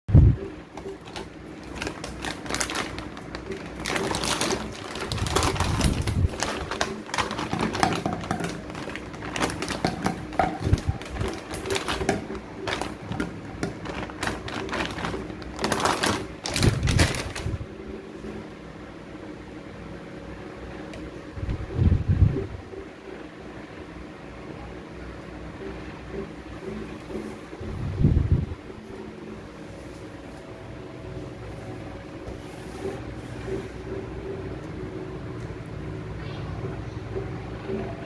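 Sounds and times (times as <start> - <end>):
plastic packet crinkling: 0.8 - 17.7.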